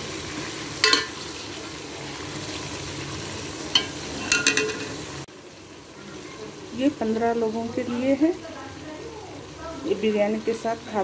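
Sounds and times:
vegetables sizzling in oil: 0:00.0 - 0:11.0
spoon knocking against pot: 0:00.8 - 0:01.2, 0:03.7 - 0:05.0.

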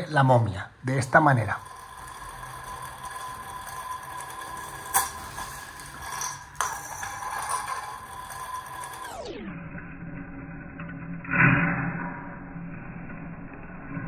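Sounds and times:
spinning top humming on tile: 0:00.8 - 0:11.2.

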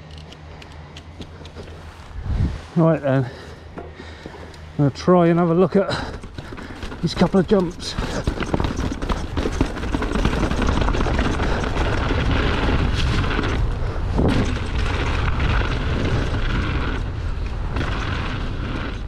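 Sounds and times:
tyres rumbling on rocky trail: 0:00.6 - 0:19.0
wind buffeting microphone: 0:02.0 - 0:04.2, 0:05.4 - 0:19.0
stones and bike knocking: 0:03.7 - 0:04.5, 0:05.9 - 0:19.0.

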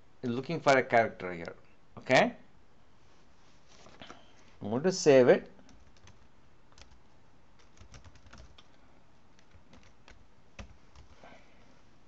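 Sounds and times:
computer keyboard keystrokes: 0:05.7 - 0:07.0, 0:07.6 - 0:08.8, 0:09.4 - 0:11.2.

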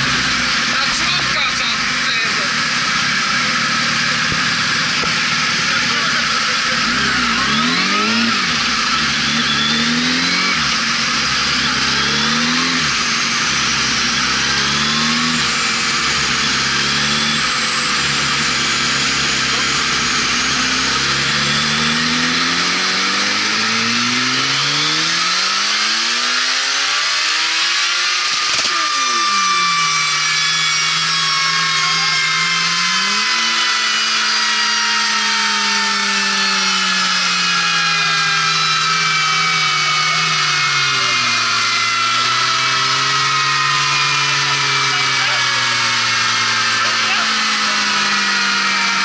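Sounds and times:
motorcycle engine revving: 0:00.0 - 0:49.0.

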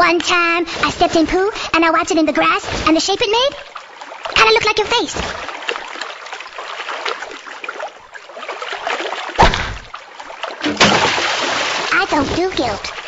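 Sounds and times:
water trickling: 0:00.0 - 0:13.0
sharp thud: 0:09.4 - 0:09.9, 0:10.6 - 0:11.8.

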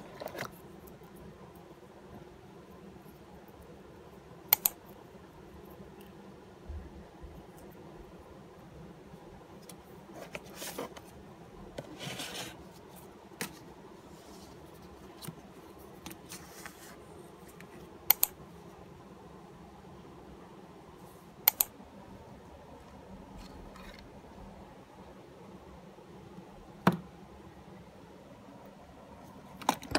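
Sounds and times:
faint steady hum: 0:00.0 - 0:29.9.

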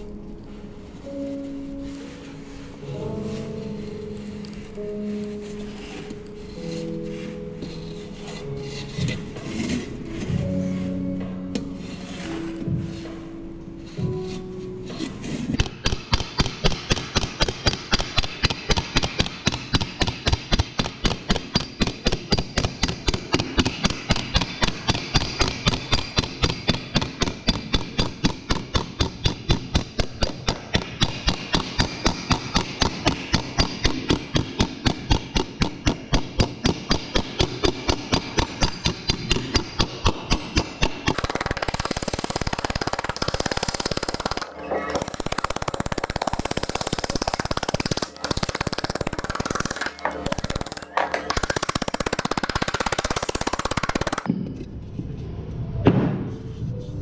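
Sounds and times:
hammer tapping sheet metal: 0:15.5 - 0:54.3.

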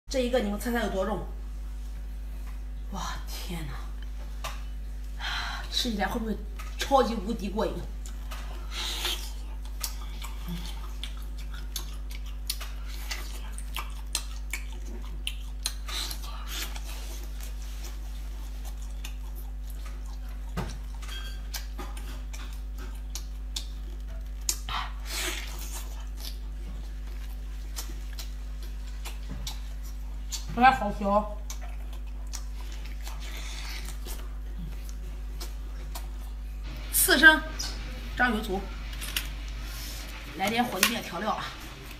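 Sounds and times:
steady low hum: 0:00.1 - 0:41.9
wet chewing and lip smacks: 0:08.0 - 0:30.6, 0:31.4 - 0:36.6.

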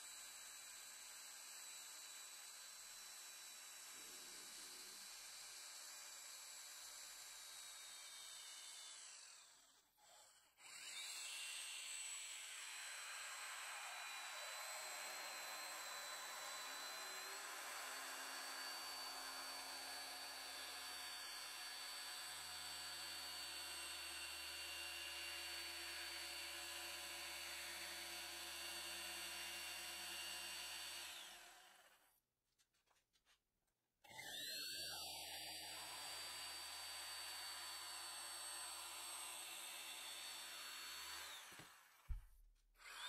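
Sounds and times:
jigsaw cutting plastic board: 0:08.0 - 0:22.0, 0:34.1 - 0:43.0.

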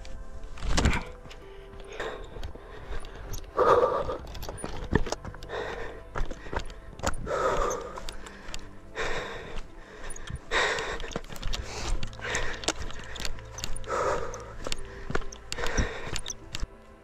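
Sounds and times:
person panting: 0:00.8 - 0:17.0
small clicks: 0:10.0 - 0:16.8.

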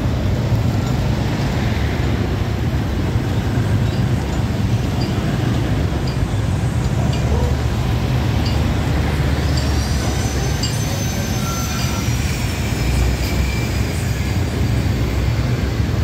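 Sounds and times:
heavy traffic on wet road: 0:00.0 - 0:16.0
thin high squeal: 0:09.4 - 0:14.3.

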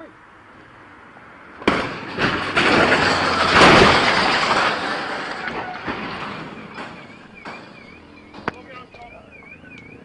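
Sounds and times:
loud rough noise: 0:01.6 - 0:08.8
vehicle crash bang: 0:01.6 - 0:08.8.

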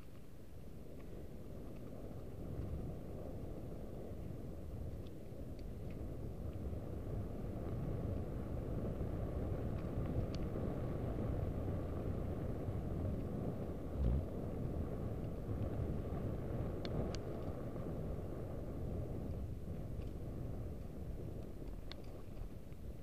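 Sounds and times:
wind rumble on microphone: 0:00.0 - 0:23.0
tyres on trail: 0:13.9 - 0:14.4
low thump: 0:14.0 - 0:14.3.

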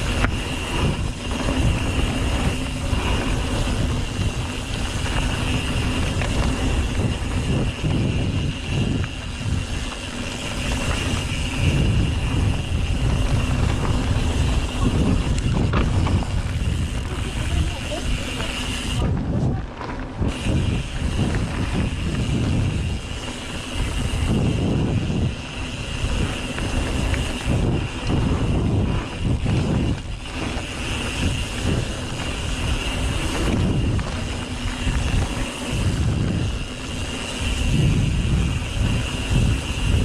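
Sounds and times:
bike tyre and frame rattle: 0:00.0 - 0:40.0
wind rumble on microphone: 0:00.0 - 0:40.0.

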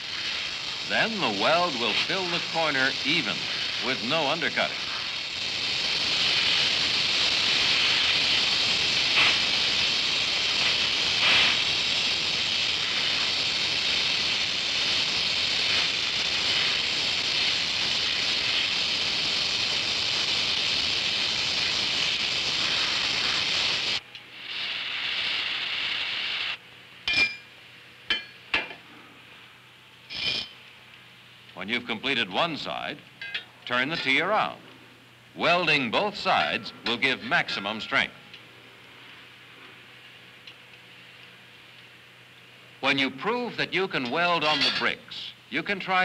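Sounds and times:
welding torch flame hissing: 0:00.0 - 0:27.1, 0:27.7 - 0:46.0.

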